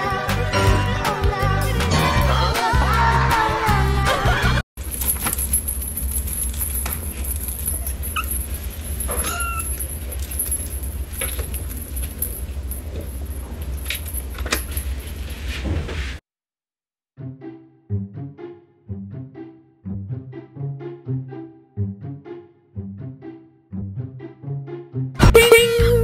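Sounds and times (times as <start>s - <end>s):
pet high calls: 7.6s - 9.9s.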